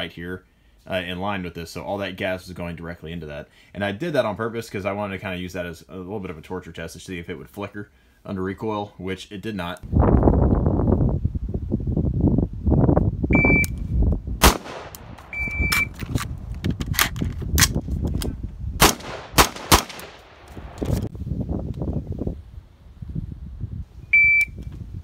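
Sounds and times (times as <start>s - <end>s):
short electronic beeps: 13.3s - 13.8s, 15.3s - 16.0s, 24.1s - 24.6s
rifle shots: 14.4s - 15.9s, 18.8s - 21.0s.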